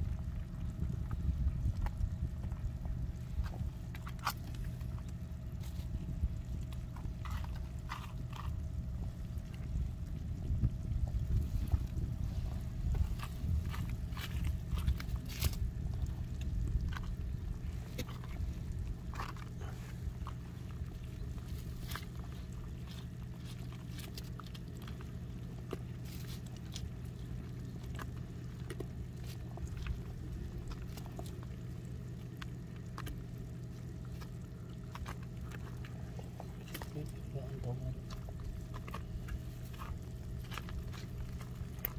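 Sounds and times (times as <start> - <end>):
low rumble: 0.0 - 41.9.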